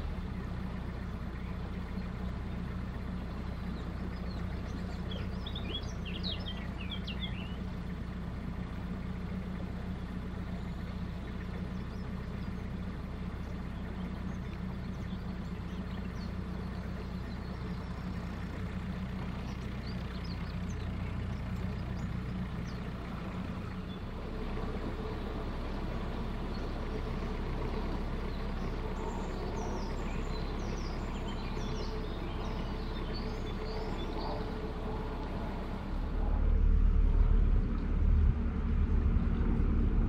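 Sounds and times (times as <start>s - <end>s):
boat engine humming: 0.0s - 40.0s
small bird chirping: 3.5s - 7.7s, 26.5s - 35.8s.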